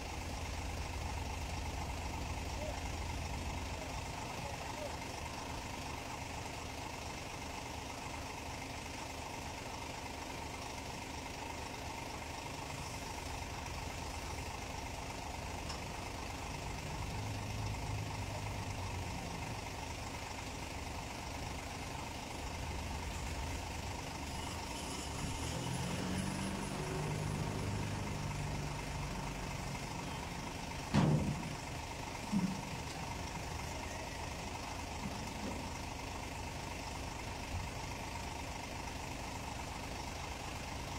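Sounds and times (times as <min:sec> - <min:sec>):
diesel engine running: 0:00.0 - 0:40.9.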